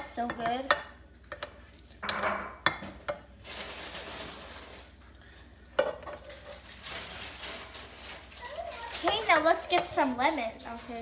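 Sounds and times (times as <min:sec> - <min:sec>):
rice sizzling: 0:03.3 - 0:05.0.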